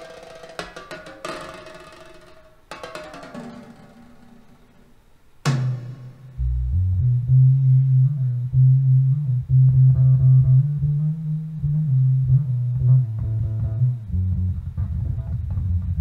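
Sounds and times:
plucked guitar notes: 0.0 - 14.2
deep bass guitar line: 5.5 - 16.0.

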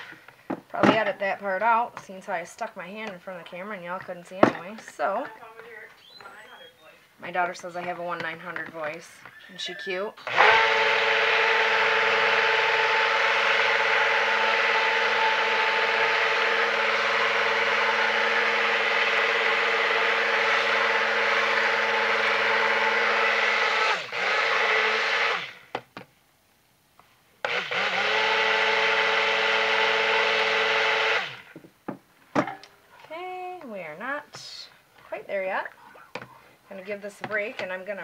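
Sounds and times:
stick blender motor whine: 8.6 - 25.8, 27.4 - 31.6.

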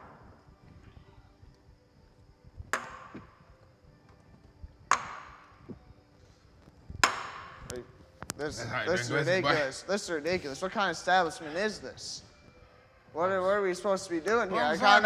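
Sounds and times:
shot glasses knocked on wooden bar: 2.8 - 3.3, 4.9 - 5.4, 7.0 - 7.7.

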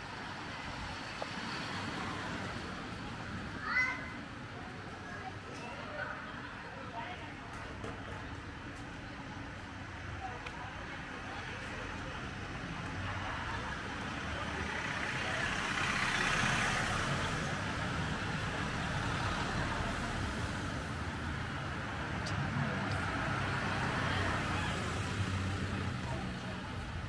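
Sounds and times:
car passing at low speed: 14.1 - 21.0.

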